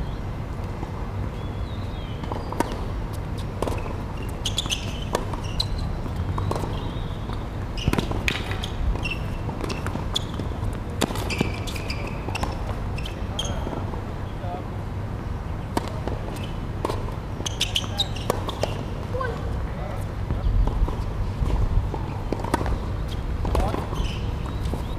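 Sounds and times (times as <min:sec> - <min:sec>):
tennis ball bouncing: 0:02.2 - 0:13.9, 0:15.6 - 0:19.1, 0:20.3 - 0:24.9
shoe squeaks on court: 0:03.4 - 0:13.8, 0:16.3 - 0:16.6, 0:17.4 - 0:18.9, 0:22.0 - 0:24.9.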